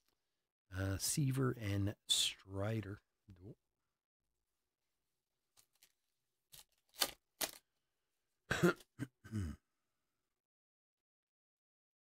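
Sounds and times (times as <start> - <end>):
wrapper crinkling and tearing: 5.6 - 7.6
person coughing and clearing throat: 8.5 - 9.7.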